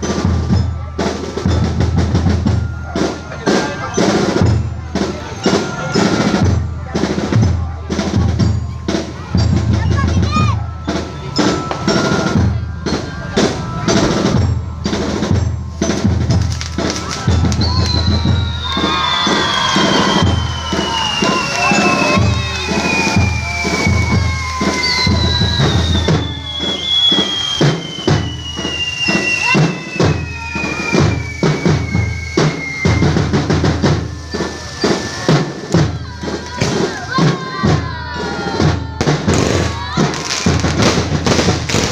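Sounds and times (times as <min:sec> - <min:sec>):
loud drumming with music: 0:00.0 - 0:41.9
firework whistle falling in pitch: 0:10.3 - 0:37.2
firework bangs: 0:10.7 - 0:37.6, 0:38.3 - 0:41.9.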